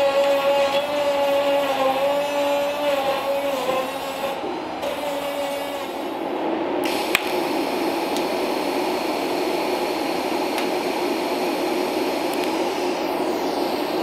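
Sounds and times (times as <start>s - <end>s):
steady low hum: 0.0s - 14.0s
welding arc hissing: 0.0s - 14.0s.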